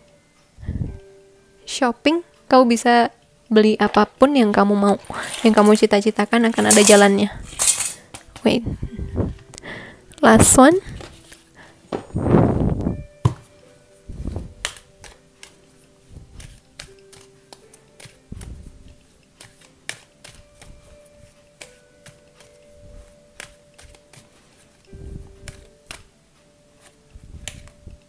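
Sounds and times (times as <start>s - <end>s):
soft background music: 0.0s - 28.0s
cards shuffling clicks: 14.5s - 15.6s, 16.2s - 20.9s, 25.3s - 26.1s, 26.8s - 27.8s.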